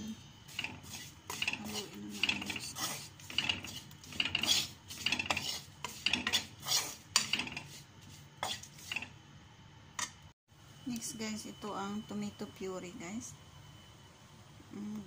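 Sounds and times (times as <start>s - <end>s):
metal spoon scraping a pan: 0.5s - 9.2s.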